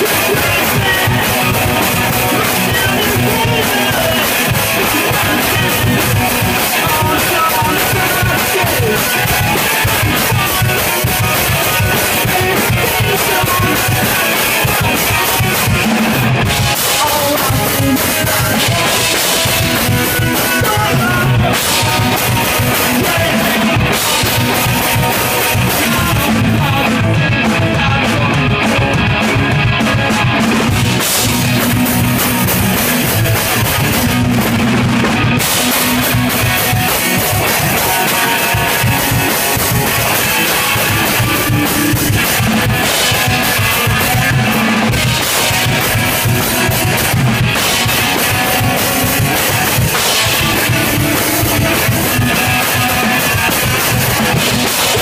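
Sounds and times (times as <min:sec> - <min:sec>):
punk rock band playing: 0:00.0 - 0:55.0.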